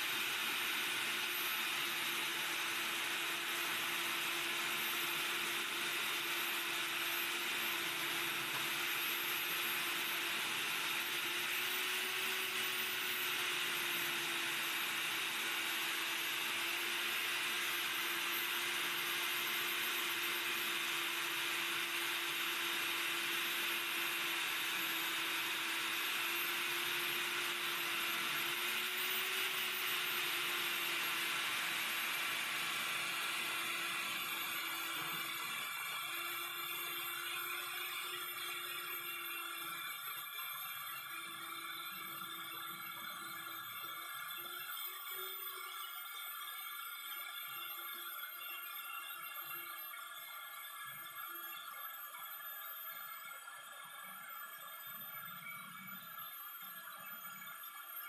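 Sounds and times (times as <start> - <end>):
grinding hiss of bit cutting: 0.0 - 51.6
core drill motor hum: 0.0 - 58.0
faint high whine: 0.0 - 58.0.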